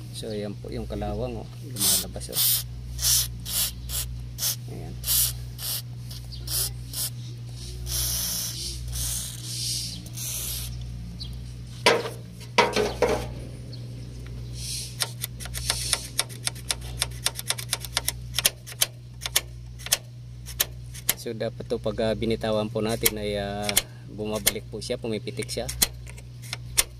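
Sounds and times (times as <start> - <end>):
steady low hum: 0.0 - 26.9
aerosol spray hissing: 1.8 - 7.2, 7.8 - 10.8.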